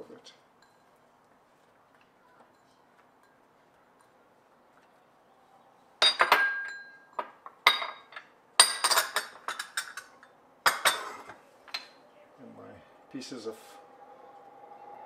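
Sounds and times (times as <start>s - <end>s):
ceramic dishes clinking: 6.0s - 12.0s.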